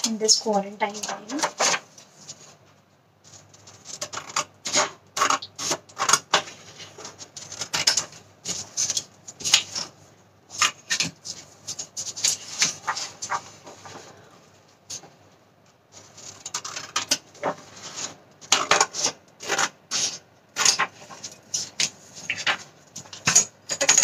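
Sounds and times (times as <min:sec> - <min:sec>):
paper rustling: 0:00.8 - 0:15.2, 0:15.9 - 0:24.0
scissors cutting paper: 0:03.3 - 0:09.9, 0:16.1 - 0:22.5.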